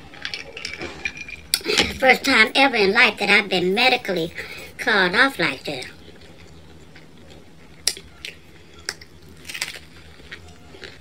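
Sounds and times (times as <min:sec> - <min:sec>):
pizza crust crunching: 0:05.4 - 0:11.0.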